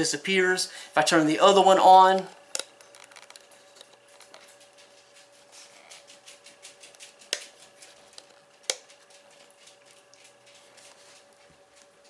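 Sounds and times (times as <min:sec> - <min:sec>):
faint steady hum: 0:00.0 - 0:12.0
handling rustles on plastic: 0:02.8 - 0:12.0.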